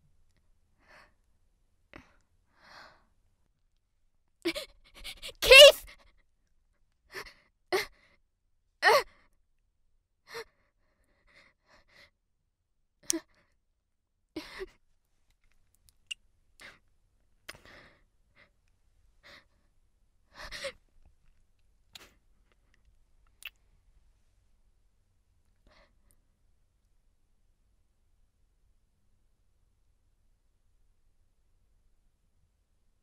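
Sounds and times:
person breathing and sobbing: 0:04.5 - 0:05.8, 0:14.4 - 0:14.8, 0:20.3 - 0:20.8.

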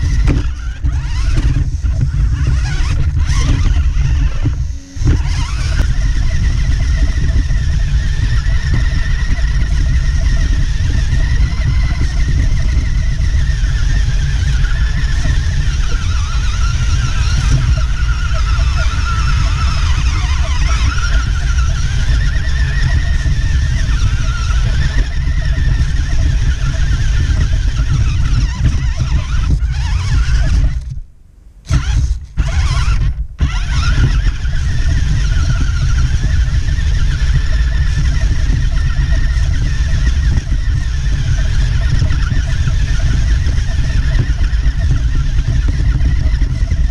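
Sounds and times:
electric motor and gears whining: 0:00.0 - 0:31.0, 0:31.6 - 0:46.9.

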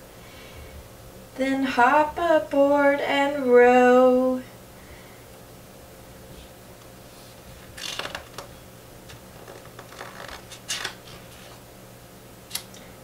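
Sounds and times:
faint steady hum: 0:00.0 - 0:13.0
book pages rustling: 0:07.1 - 0:11.6.

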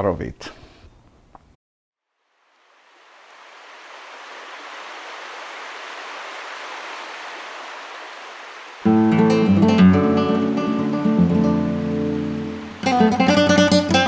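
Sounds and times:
running water: 0:02.3 - 0:14.0
acoustic guitar: 0:08.8 - 0:14.0.

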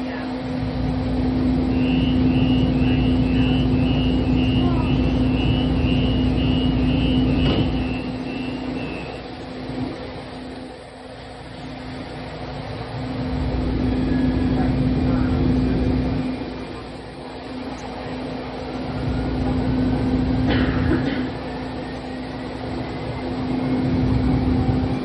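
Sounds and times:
light rail train running: 0:00.0 - 0:25.0
high beep: 0:01.7 - 0:09.2.

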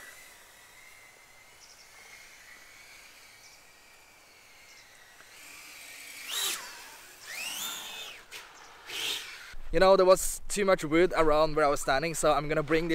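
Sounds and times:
drone motors whining: 0:00.0 - 0:09.6.

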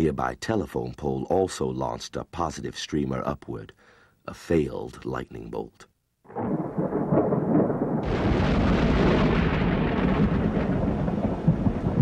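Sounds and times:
thunder crack: 0:06.3 - 0:12.0
thunder rumbling: 0:06.3 - 0:12.0.

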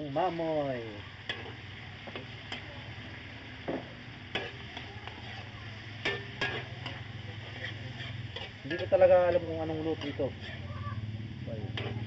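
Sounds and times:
meat sizzling in a wok: 0:00.0 - 0:12.0
steady low hum: 0:00.8 - 0:12.0
metal spatula scraping pan: 0:04.3 - 0:10.7, 0:11.7 - 0:12.0.

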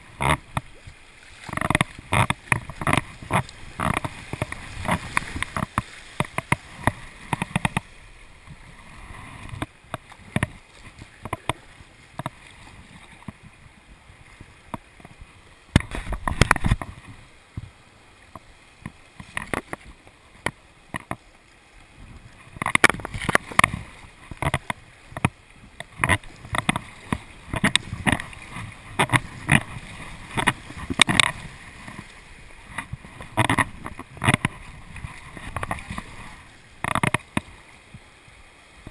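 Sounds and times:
paddle strokes splashing: 0:00.0 - 0:38.9
river water rushing: 0:00.0 - 0:38.9.

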